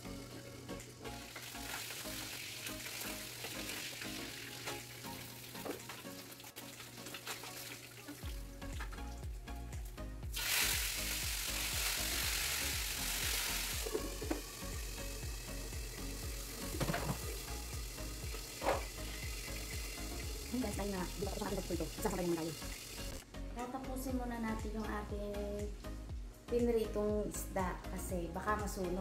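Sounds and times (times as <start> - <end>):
fish sizzling in hot oil: 0.1 - 8.5, 10.3 - 23.2.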